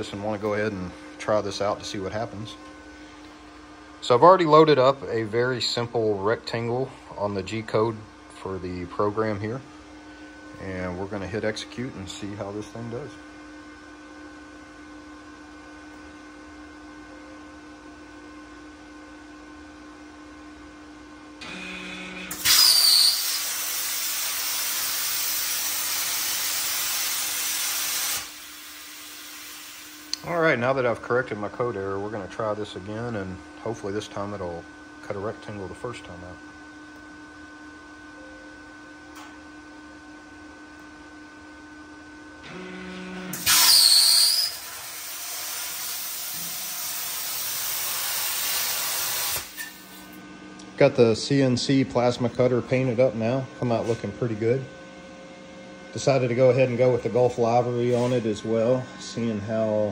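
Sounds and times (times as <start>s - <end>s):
plasma cutter arc hissing: 22.3s - 30.2s, 43.3s - 50.2s.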